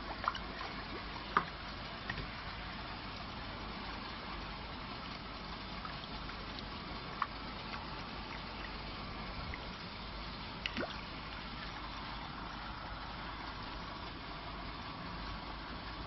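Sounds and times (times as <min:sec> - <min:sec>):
fish tank water bubbling: 0:00.0 - 0:14.8
water plop: 0:10.6 - 0:11.1.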